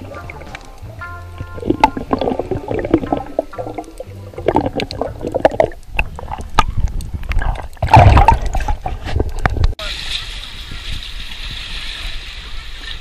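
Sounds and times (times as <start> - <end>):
underwater gurgling and bubbling: 0.0 - 9.8.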